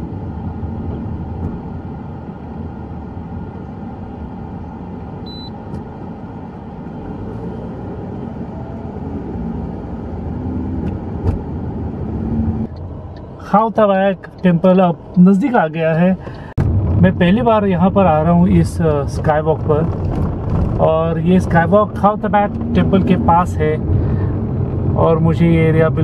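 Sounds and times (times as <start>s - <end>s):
moving car road noise: 0.0s - 26.0s
short high beep: 5.3s - 5.6s.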